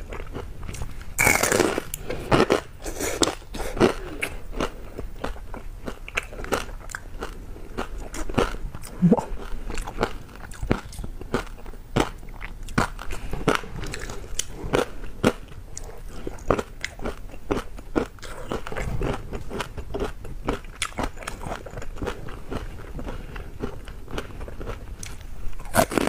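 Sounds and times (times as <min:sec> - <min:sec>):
crunching and chewing: 0:00.0 - 0:26.0.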